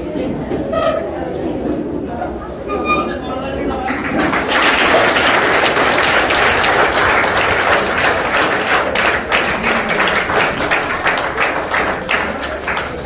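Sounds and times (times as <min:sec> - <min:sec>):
audience applauding: 0:03.7 - 0:13.0.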